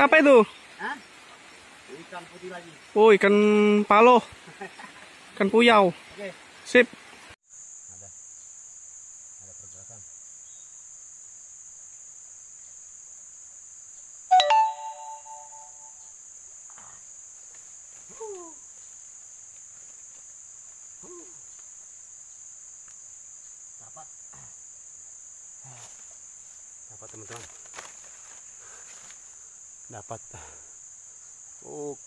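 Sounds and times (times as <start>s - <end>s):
forest insects droning: 0.0s - 32.0s
bell-like ding: 14.3s - 16.0s.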